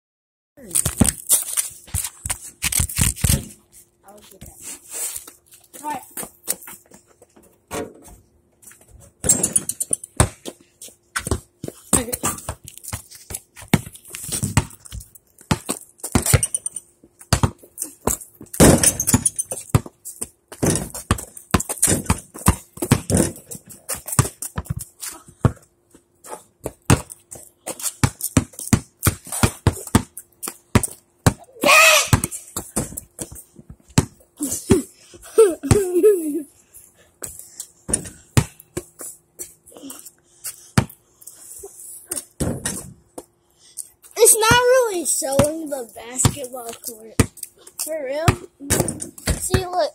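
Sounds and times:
basketballs bouncing on concrete: 0:00.7 - 0:02.4, 0:05.2 - 0:36.2, 0:37.2 - 0:41.1, 0:42.1 - 0:43.3, 0:44.2 - 0:49.9
ball hitting backboard and rim: 0:09.2 - 0:10.5, 0:13.6 - 0:14.9, 0:15.5 - 0:24.8, 0:26.6 - 0:27.2, 0:28.0 - 0:33.1, 0:37.9 - 0:38.6, 0:42.4 - 0:43.0, 0:44.3 - 0:47.4, 0:48.2 - 0:49.9.

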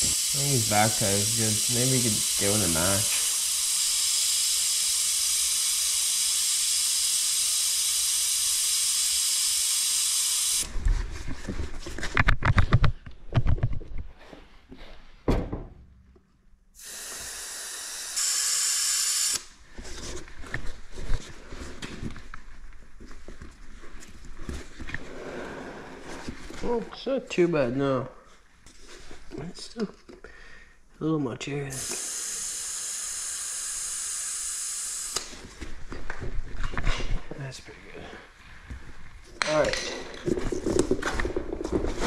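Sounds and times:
air hissing from tire valve: 0:00.0 - 0:10.7, 0:16.8 - 0:19.6, 0:31.7 - 0:35.4.

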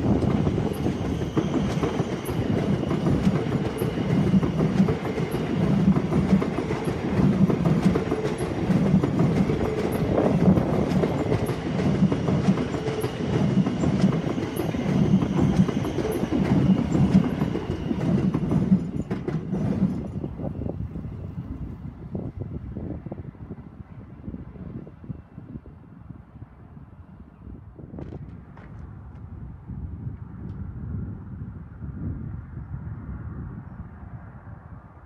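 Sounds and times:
train wheels rumbling on rails: 0:00.0 - 0:23.4.

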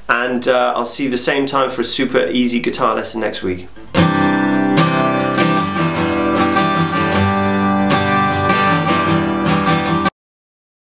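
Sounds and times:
acoustic guitar strumming: 0:03.8 - 0:10.1.

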